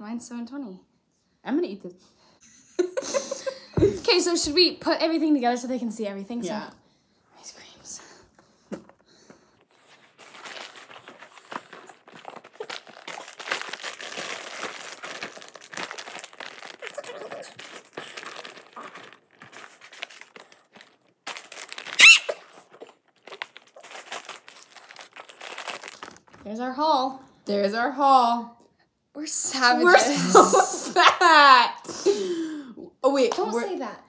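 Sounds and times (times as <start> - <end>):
snack wrappers crinkling: 8.8 - 26.5.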